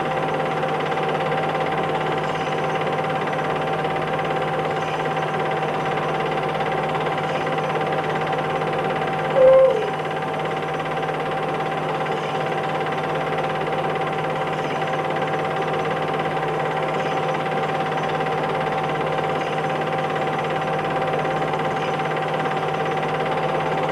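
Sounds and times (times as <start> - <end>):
machine hum and hiss: 0.0 - 23.9
high whine: 9.3 - 10.1
squeak dropping in pitch: 9.4 - 10.0.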